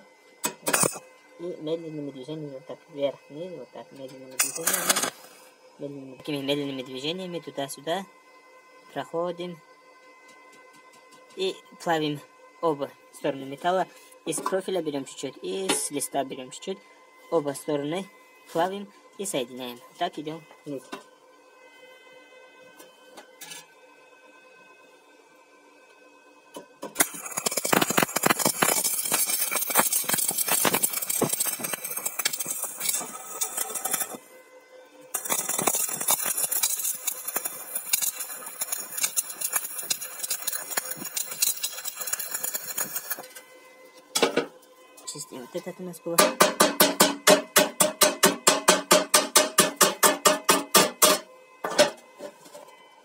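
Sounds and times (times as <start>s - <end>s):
welding arc crackling and sizzling: 0.0s - 8.1s, 26.5s - 34.4s, 35.0s - 51.3s
hammer striking steel: 46.2s - 52.0s.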